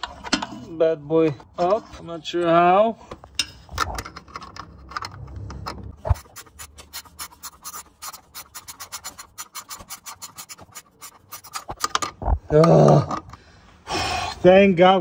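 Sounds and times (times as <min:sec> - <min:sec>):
wrench ratcheting: 0:03.8 - 0:12.1.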